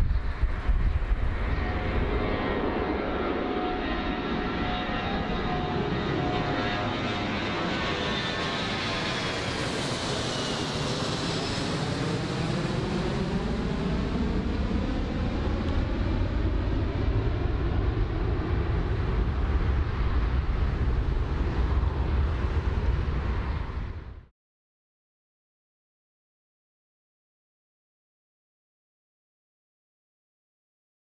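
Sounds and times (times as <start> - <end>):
jet engines of airliner: 0.0 - 24.3
deep rumble: 15.2 - 24.3.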